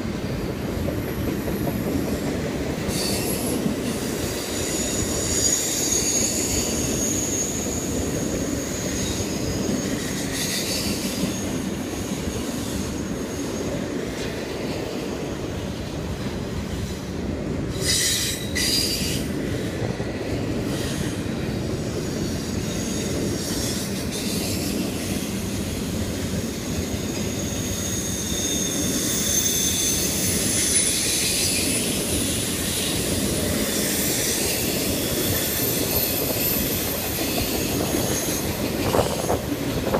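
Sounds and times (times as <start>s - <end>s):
train wheels rumbling on rails: 0.0s - 39.9s
high-pitched wheel squeal: 2.9s - 13.7s, 27.3s - 39.9s.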